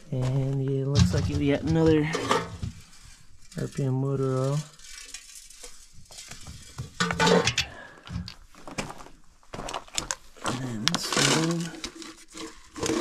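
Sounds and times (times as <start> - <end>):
tin can clinking and scraping: 0.1 - 8.4, 9.8 - 13.0
footsteps on loose rock: 8.0 - 11.6.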